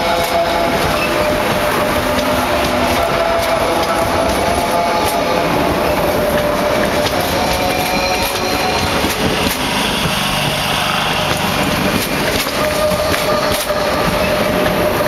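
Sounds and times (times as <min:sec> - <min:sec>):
train wheels rushing on rails: 0:00.0 - 0:15.0
wheels clicking on rail joints: 0:00.0 - 0:15.0.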